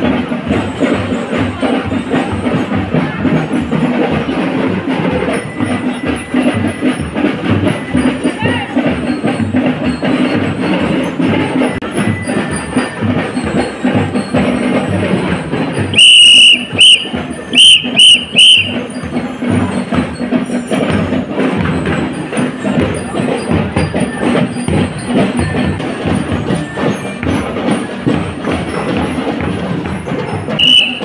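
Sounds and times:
marching band music: 0.0 - 31.0
shrill whistle blasts: 15.9 - 18.9, 30.6 - 31.0.

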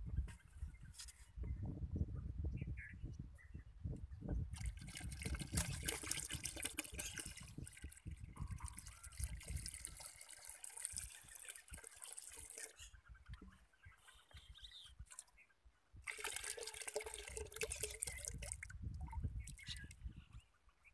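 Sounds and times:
liquid pouring into bucket: 4.6 - 12.9, 16.0 - 19.8.

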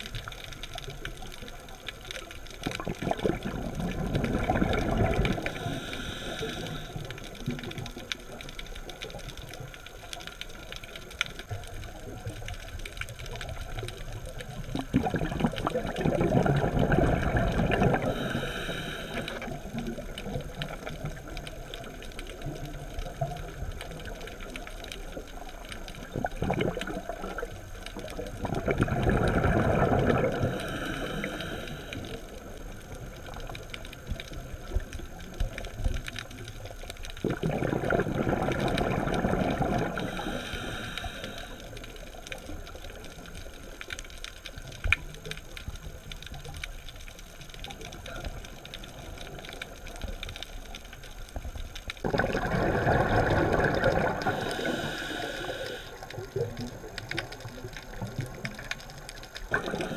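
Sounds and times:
diver exhaling bubbles underwater: 2.6 - 8.1, 14.4 - 21.2, 26.0 - 32.2, 37.2 - 41.4, 52.0 - 59.9
regulator breathing: 5.4 - 7.3, 18.0 - 19.6, 30.4 - 32.4, 39.8 - 41.8, 54.0 - 56.2.

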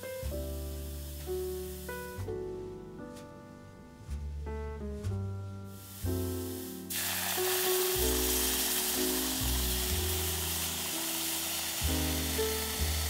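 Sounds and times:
background music: 0.0 - 13.0
roux sizzling and hissing: 0.2 - 2.2, 5.7 - 13.0
milk pouring into saucepan: 6.9 - 13.0.

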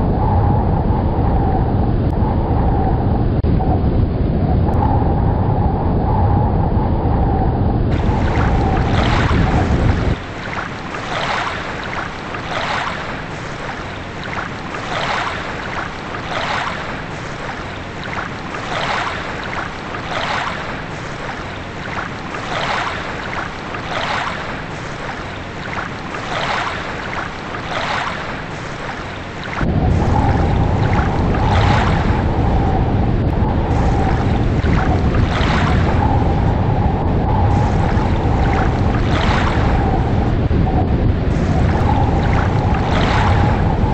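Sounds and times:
deep rumble with steady tone: 0.0 - 10.4, 29.6 - 43.9
water washing with rhythmic swish: 7.9 - 43.9.

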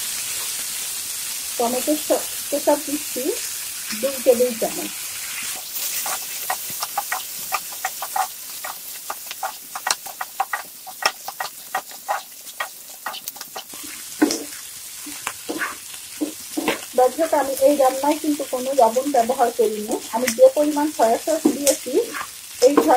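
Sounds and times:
food sizzling in frying pan: 0.0 - 22.9
spatula scraping pan: 5.2 - 18.0, 21.4 - 22.9.

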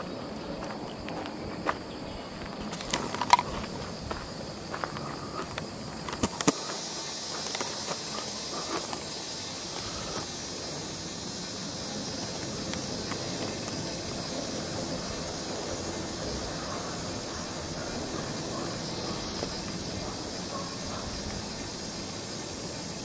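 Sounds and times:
footsteps: 0.0 - 10.3
high-pitched hiss: 0.0 - 23.0.

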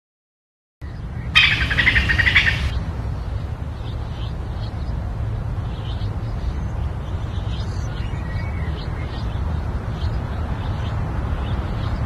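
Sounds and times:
songbird chirping trill: 0.8 - 2.8
low outdoor rumble: 0.8 - 12.0.

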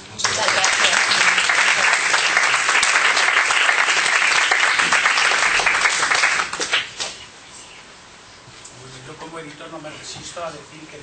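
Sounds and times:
audience applauding: 0.1 - 7.2.

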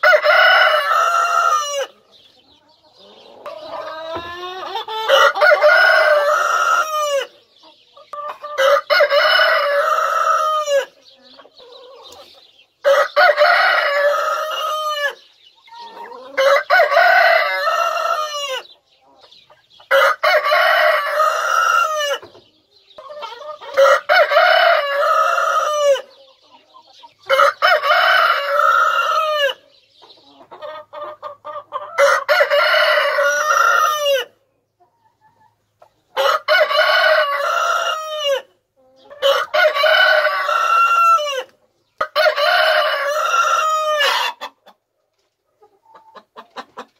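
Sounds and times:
rooster crowing: 0.0 - 1.9, 4.9 - 7.3, 12.9 - 15.2, 16.3 - 18.6, 19.9 - 22.2, 23.8 - 26.1, 32.0 - 34.3, 36.2 - 38.5, 39.2 - 41.5, 42.2 - 44.4
hens clucking quietly: 0.0 - 46.9.

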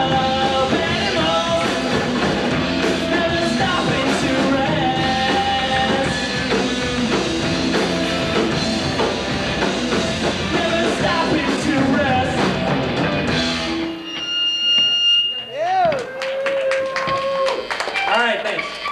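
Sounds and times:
rock band playing loudly: 0.0 - 14.2.

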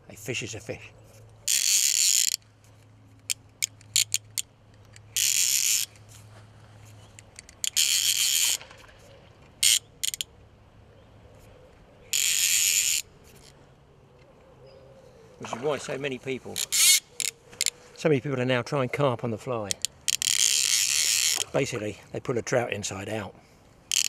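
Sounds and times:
fishing reel ratchet buzzing: 1.5 - 2.4, 3.2 - 6.0, 7.2 - 8.6, 9.6 - 10.3, 12.1 - 13.5, 16.6 - 17.7, 19.7 - 21.5
single reel clicks: 7.1 - 8.6, 9.6 - 10.3, 19.7 - 21.6.

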